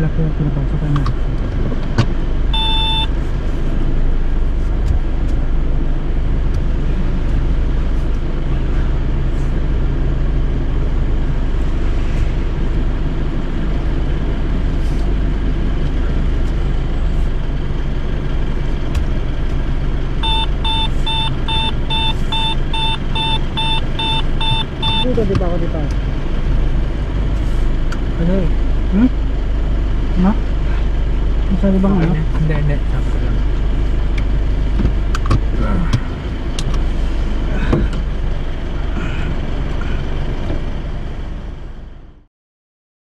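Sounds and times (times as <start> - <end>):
car engine rumble: 0.0 - 42.3
electronic beep: 2.5 - 3.1, 20.2 - 25.1
parking sensor beeps: 2.5 - 3.1, 20.2 - 25.3.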